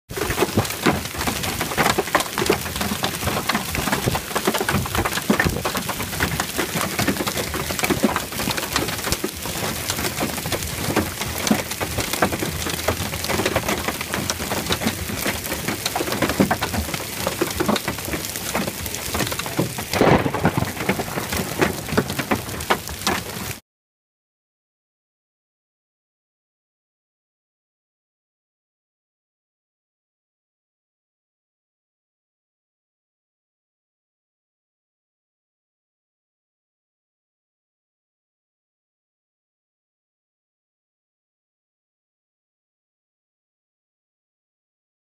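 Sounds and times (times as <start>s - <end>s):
hail and rain pelting water: 0.1s - 23.6s.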